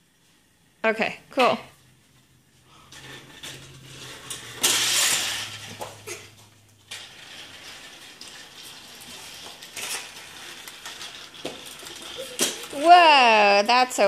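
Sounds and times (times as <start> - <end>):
toy train motor and gears clicking: 2.9 - 6.2, 6.8 - 14.0.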